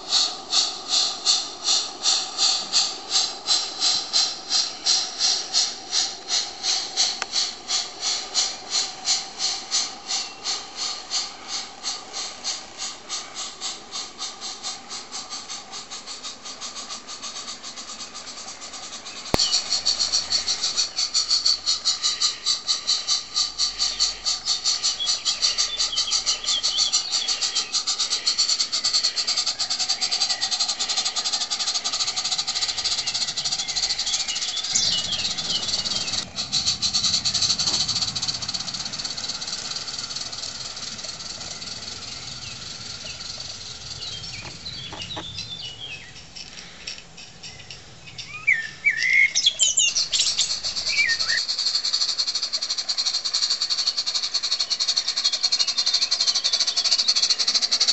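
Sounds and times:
steam locomotive chuffing: 0.0s - 57.9s
birds chirping: 9.8s - 12.1s, 18.8s - 57.9s.

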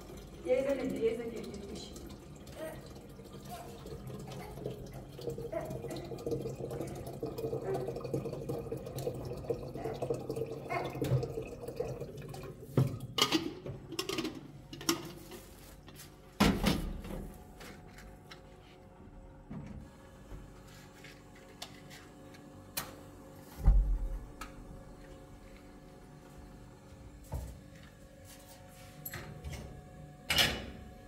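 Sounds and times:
water running and trickling: 0.0s - 13.2s.

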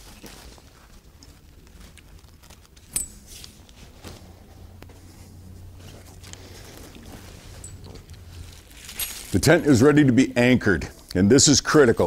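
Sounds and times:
nylon rustling: 0.0s - 10.0s
low steady hum: 0.0s - 12.0s
soft footsteps on carpet: 3.6s - 8.7s.

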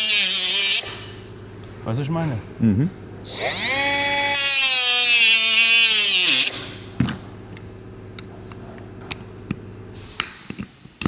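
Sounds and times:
power tool sawing with motor whine: 3.2s - 6.6s.

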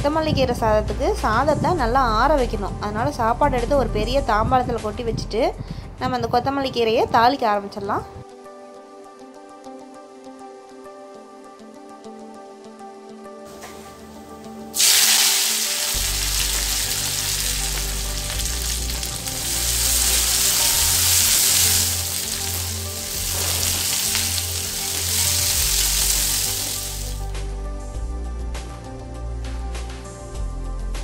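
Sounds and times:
background music with low beat: 0.0s - 6.6s, 13.2s - 31.0s
food sizzling in hot oil: 13.5s - 27.2s.

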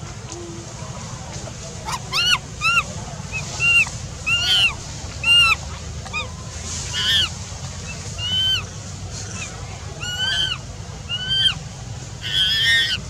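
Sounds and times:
baby monkey crying: 1.8s - 6.3s, 6.9s - 7.3s, 7.9s - 11.6s, 12.2s - 13.0s.

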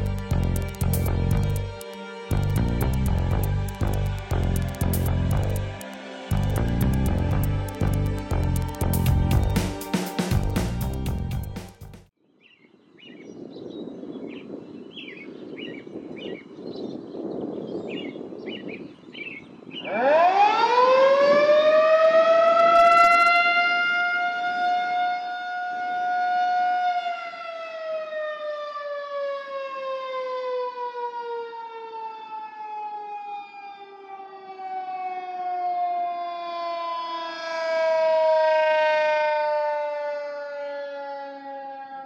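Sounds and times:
rotating siren winding: 0.0s - 9.6s, 22.6s - 23.4s.

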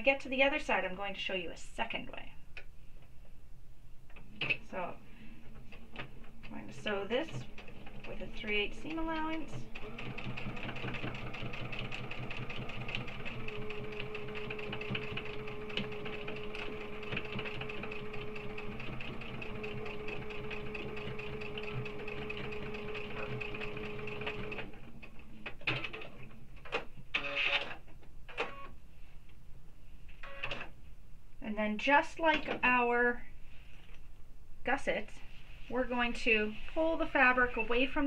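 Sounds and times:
sewing machine stitching: 6.4s - 24.9s.

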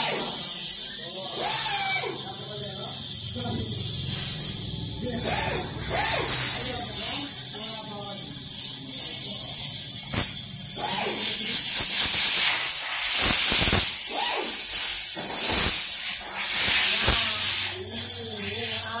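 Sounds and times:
loud steady hiss: 0.0s - 19.0s.

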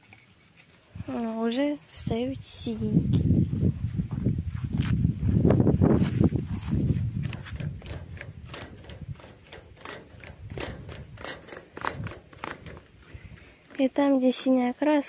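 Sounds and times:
camera handling rumble: 4.7s - 14.0s.

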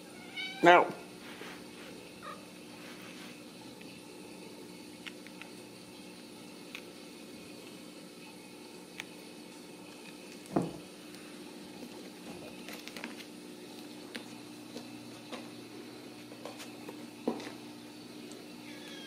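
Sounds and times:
kittens scratching and crinkling foil: 11.2s - 15.4s.

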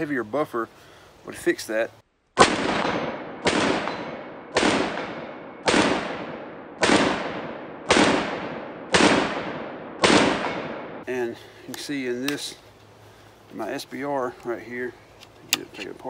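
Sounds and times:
rifle shots: 2.4s - 11.0s.

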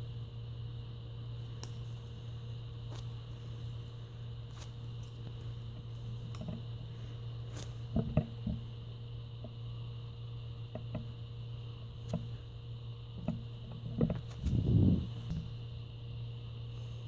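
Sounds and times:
steady low hum: 0.0s - 17.0s
foam toy handling noise: 1.5s - 8.7s
small clicks and knocks: 4.5s - 6.7s, 7.5s - 8.7s, 10.6s - 11.2s, 12.0s - 12.4s, 13.1s - 14.5s.

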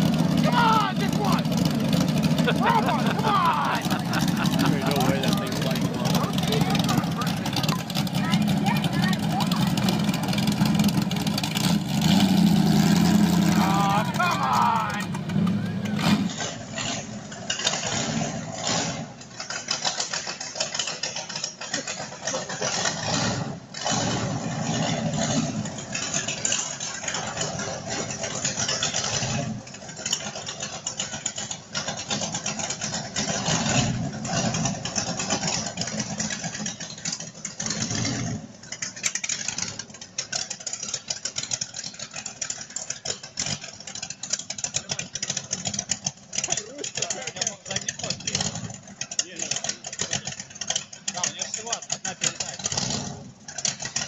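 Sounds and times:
motorcycle engine surging: 0.0s - 54.0s.

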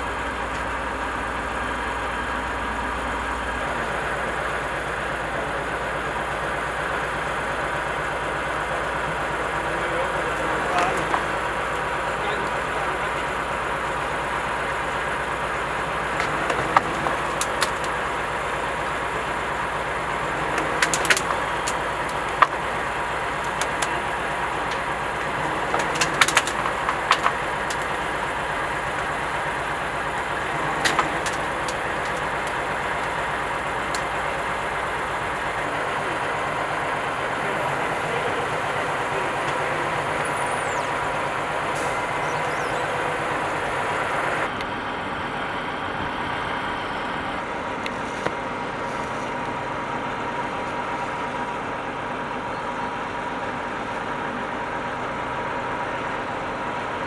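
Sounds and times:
diesel engine idling: 0.0s - 57.0s
sharp clicks and clanks: 16.0s - 18.2s, 20.1s - 34.4s.

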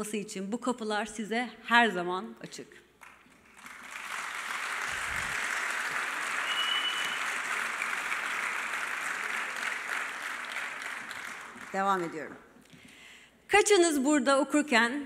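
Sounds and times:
large audience applauding: 3.0s - 12.3s.

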